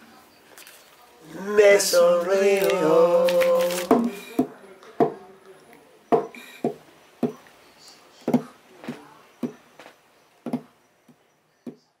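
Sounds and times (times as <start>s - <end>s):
percussive acoustic guitar: 2.4s - 4.5s.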